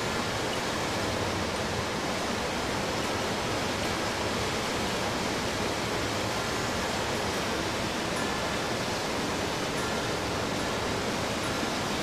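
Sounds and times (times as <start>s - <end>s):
waterfall rushing into pool: 0.0s - 12.0s.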